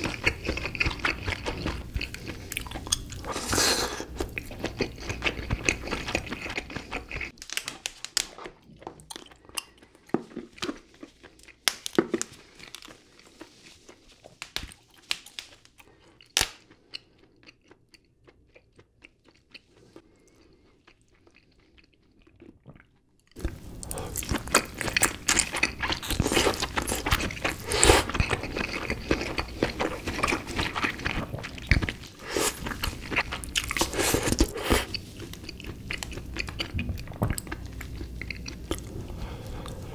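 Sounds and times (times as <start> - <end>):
close chewing and biting: 0.0 - 39.9
sharp clicks of crab shells: 7.4 - 8.4.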